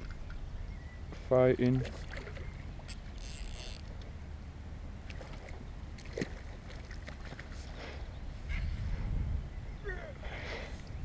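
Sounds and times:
water splashing: 0:01.6 - 0:04.1, 0:05.0 - 0:07.7
wind rumble on microphone: 0:08.1 - 0:11.0.

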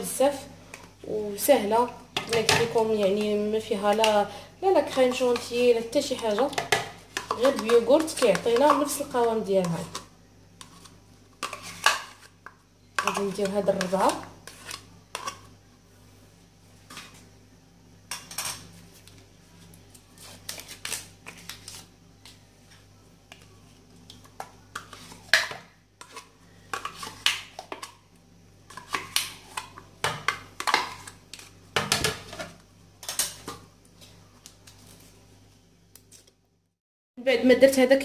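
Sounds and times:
yogurt scraped from plastic cups: 0:05.0 - 0:12.4, 0:13.0 - 0:15.5.

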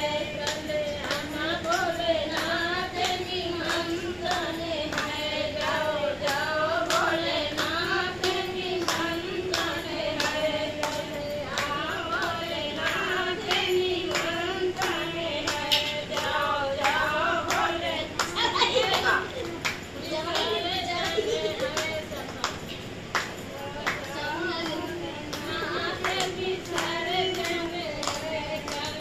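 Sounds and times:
hand claps: 0:00.0 - 0:29.0
women singing together: 0:00.0 - 0:29.0.

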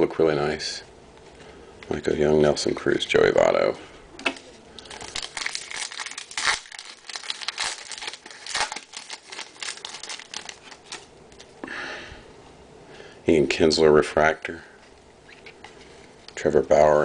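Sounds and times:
foil wrapper tearing: 0:04.8 - 0:11.1
foil wrapper crinkling: 0:04.8 - 0:11.5.

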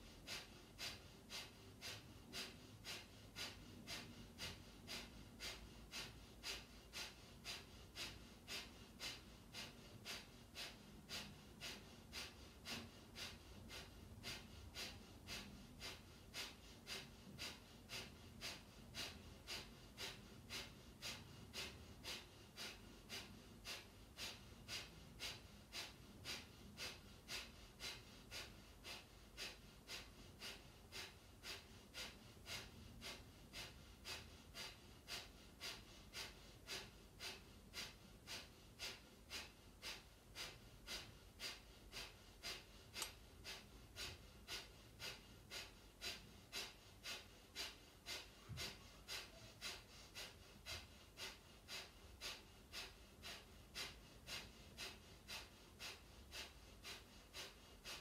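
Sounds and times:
sharp nasal exhalations: 0:39.4 - 0:57.5.

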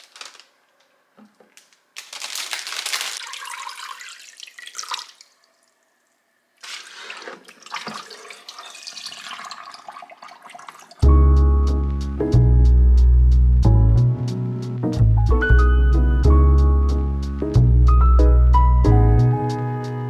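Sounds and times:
water poured into sink: 0:03.2 - 0:05.4, 0:06.6 - 0:11.0
water splashing in a metal sink: 0:03.2 - 0:05.4, 0:06.6 - 0:11.0.

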